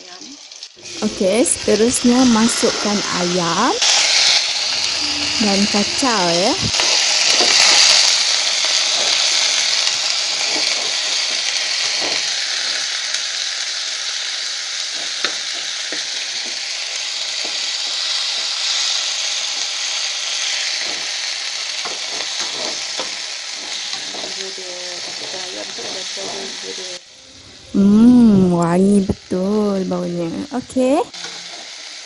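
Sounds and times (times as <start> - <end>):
chicken sizzling in oil: 0.0 - 27.1, 27.8 - 32.0
metal spoon scraping pan: 21.8 - 26.8.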